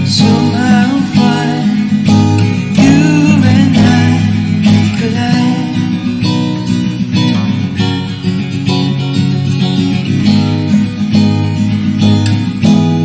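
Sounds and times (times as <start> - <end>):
person singing wordless melody: 0.0 - 6.2
acoustic guitar strumming: 0.0 - 13.0.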